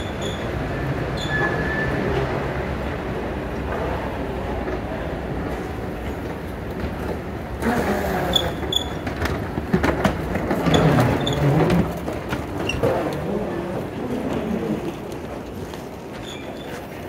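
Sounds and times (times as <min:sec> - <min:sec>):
suitcase wheels clacking: 0:06.1 - 0:17.0.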